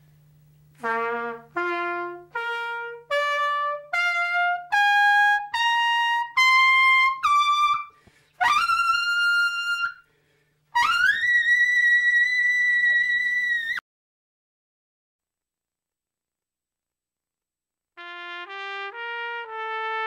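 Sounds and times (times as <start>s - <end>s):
trumpet playing ascending notes: 0.8s - 10.0s, 10.8s - 13.8s, 18.0s - 20.0s.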